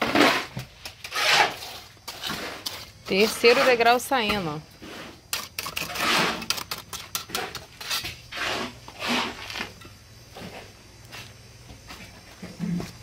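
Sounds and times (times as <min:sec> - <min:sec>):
trowel scraping wet concrete: 0:00.0 - 0:09.8.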